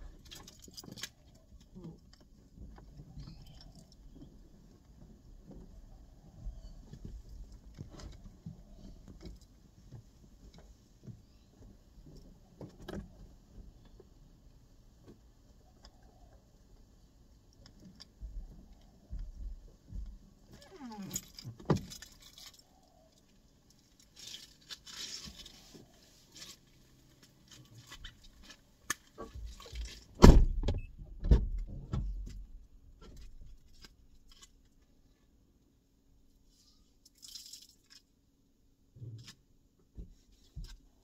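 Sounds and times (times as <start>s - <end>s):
rustling and knocking at car door: 2.2s - 15.4s, 17.7s - 22.2s, 27.0s - 33.7s, 38.9s - 41.0s
car door shutting with thud: 30.2s - 32.2s.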